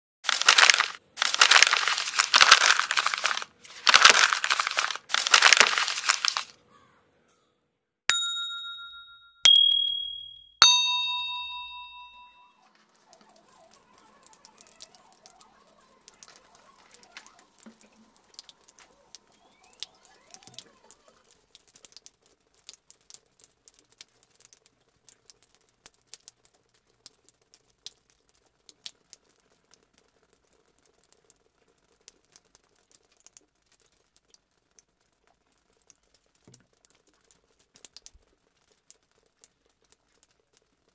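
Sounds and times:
faint crackles and clicks: 0.3 - 6.5, 13.0 - 40.9
harsh crackling noise bursts: 0.3 - 6.5
chime-like dings: 8.1 - 12.6.

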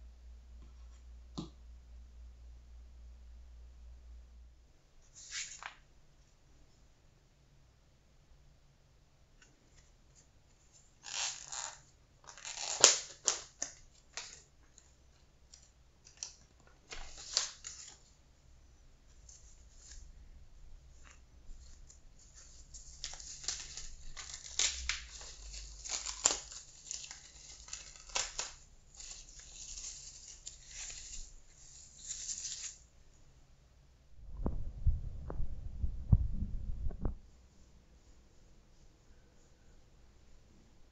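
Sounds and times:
crinkling and rustling: 9.4 - 18.2, 20.9 - 32.8
packet tearing: 11.0 - 14.4, 22.8 - 31.3.

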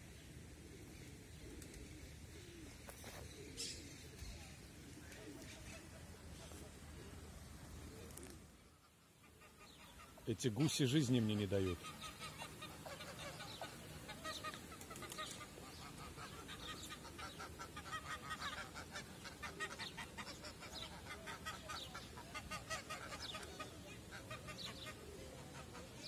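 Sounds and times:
geese honking: 8.9 - 26.0.

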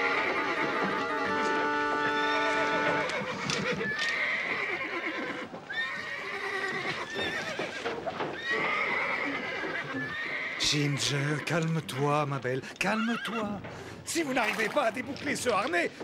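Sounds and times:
held music chord: 0.0 - 3.0
hooves clattering: 0.0 - 16.0.

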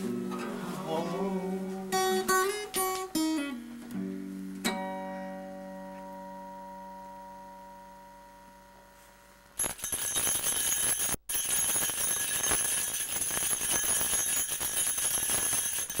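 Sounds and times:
acoustic guitar chord ringing: 0.0 - 9.4
loud jingling rattle: 9.6 - 16.0.

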